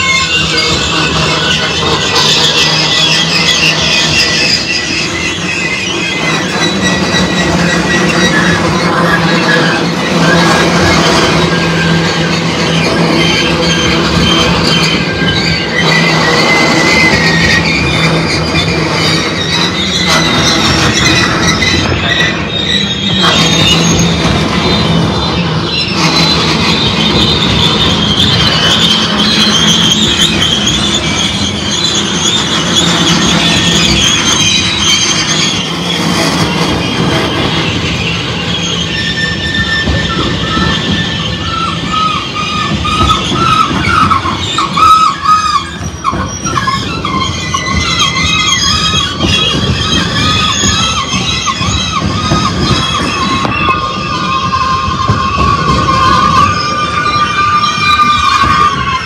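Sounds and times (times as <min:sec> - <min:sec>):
freight train wheels rumbling on rail: 0:00.0 - 0:59.0
high-pitched wheel squeal: 0:00.0 - 0:59.0
lower wavering wheel squeal: 0:00.0 - 0:59.0.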